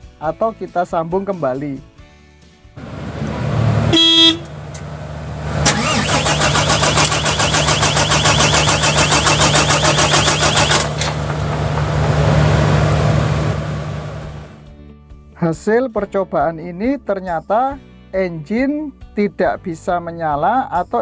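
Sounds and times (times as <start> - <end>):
diesel engine starter cranking: 2.8 - 14.6
short beep: 3.9 - 4.5.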